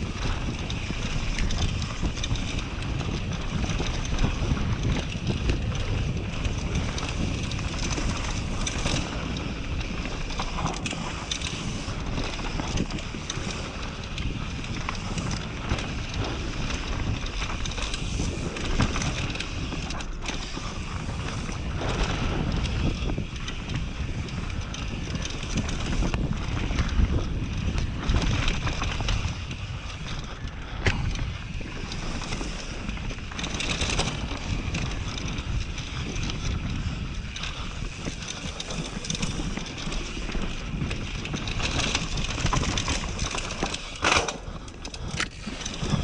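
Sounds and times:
bike rattling over bumps: 0:00.0 - 0:46.0
bike tyres rolling over dirt and stones: 0:00.0 - 0:46.0
wind buffeting microphone: 0:00.0 - 0:46.0.

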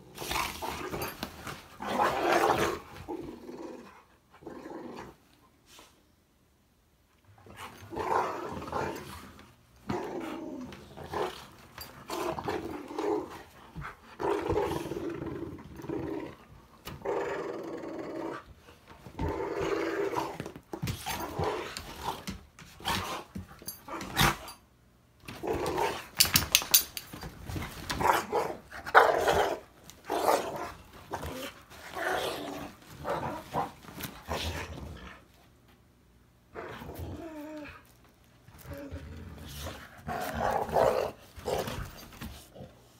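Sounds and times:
dogs growling in play: 0:00.0 - 0:05.8, 0:07.4 - 0:24.6, 0:25.2 - 0:26.4, 0:27.4 - 0:35.6, 0:36.5 - 0:42.9
clatters and scuffles: 0:25.2 - 0:28.5, 0:37.6 - 0:42.7.

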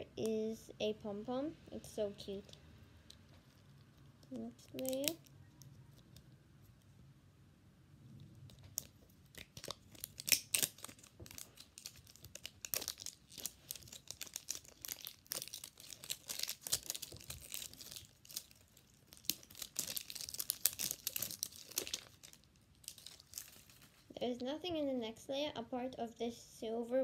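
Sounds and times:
paper wrapping crinkling and tearing: 0:04.4 - 0:05.2, 0:08.6 - 0:24.1.

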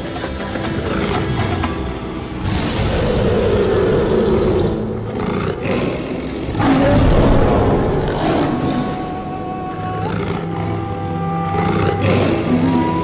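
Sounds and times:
lion roaring: 0:02.4 - 0:09.3, 0:10.0 - 0:12.8.

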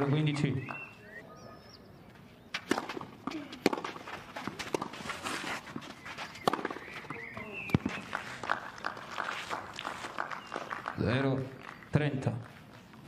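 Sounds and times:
shoes scuffing on clay court: 0:02.0 - 0:10.6
tennis ball struck by racket: 0:02.6 - 0:05.3, 0:06.4 - 0:08.0.

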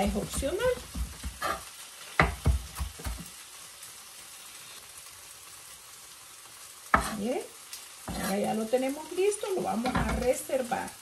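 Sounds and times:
knife chopping on wooden board: 0:00.0 - 0:01.6, 0:02.2 - 0:03.3, 0:06.9 - 0:07.2.

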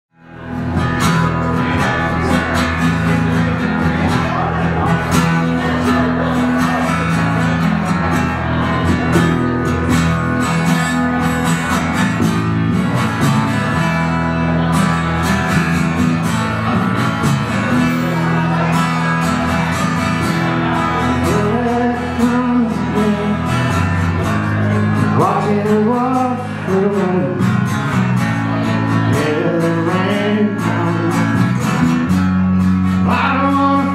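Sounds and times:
acoustic guitar strumming: 0:00.2 - 0:33.9
person singing: 0:17.6 - 0:27.6, 0:28.6 - 0:31.9, 0:32.8 - 0:33.9.

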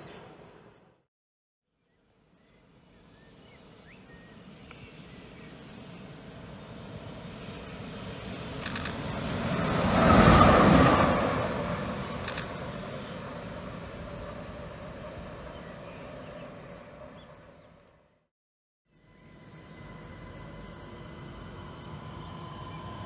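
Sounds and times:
electric locomotive passing: 0:03.8 - 0:18.0, 0:18.9 - 0:23.0.

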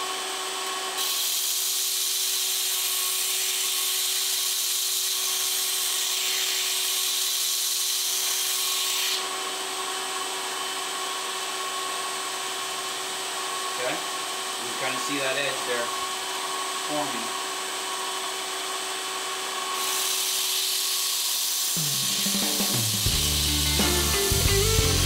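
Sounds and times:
knife grinding hiss: 0:01.0 - 0:09.2, 0:19.8 - 0:25.0
belt grinder motor humming: 0:19.0 - 0:25.0.

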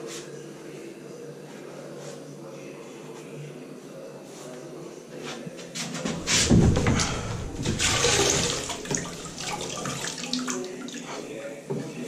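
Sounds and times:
water sloshing in a bucket: 0:06.2 - 0:11.3.

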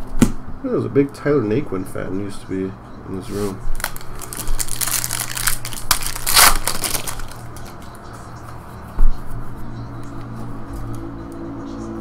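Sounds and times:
cards rustling: 0:03.2 - 0:08.6
foil wrapper crinkling: 0:03.8 - 0:08.0.

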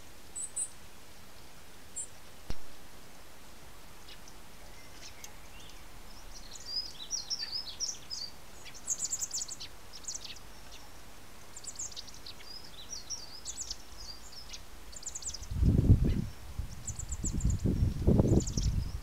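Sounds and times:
fledgling bird begging chirps: 0:04.0 - 0:10.9.

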